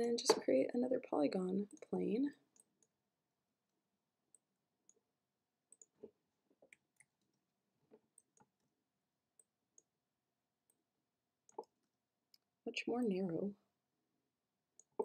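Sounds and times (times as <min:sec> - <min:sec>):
computer mouse clicks: 0:05.7 - 0:07.4.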